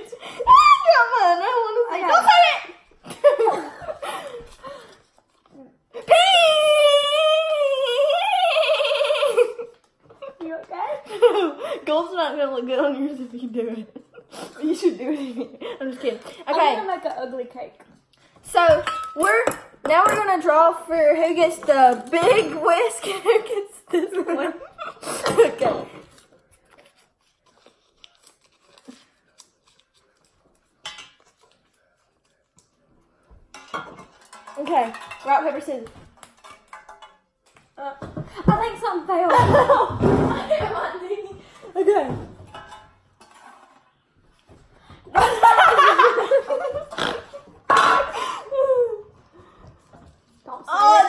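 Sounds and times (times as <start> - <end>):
paper crinkling while folded: 26.2 - 32.9
girls laughing loudly: 45.2 - 49.1.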